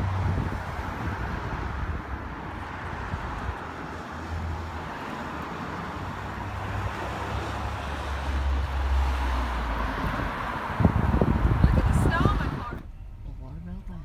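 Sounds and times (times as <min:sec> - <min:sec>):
wind rumbling on microphone: 0:00.0 - 0:04.0, 0:09.1 - 0:12.9.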